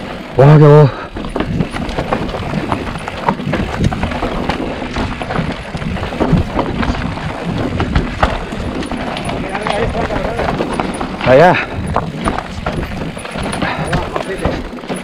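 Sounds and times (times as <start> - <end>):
bike clattering over rough trail: 0.0 - 15.0
wind and rolling rumble: 0.0 - 15.0.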